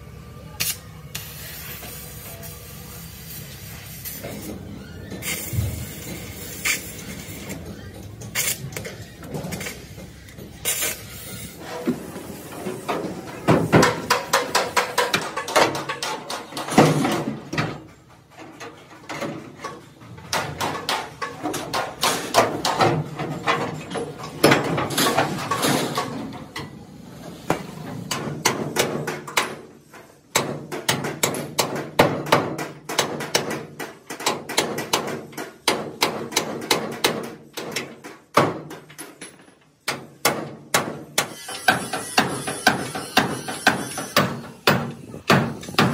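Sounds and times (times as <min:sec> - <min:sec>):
hammer striking steel frame: 0:12.7 - 0:17.8, 0:28.1 - 0:39.2, 0:39.8 - 0:45.9.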